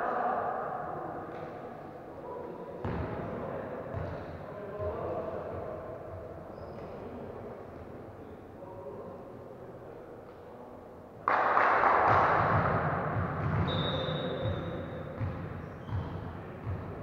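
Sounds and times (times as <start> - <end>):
short high whistle: 13.6 - 14.8.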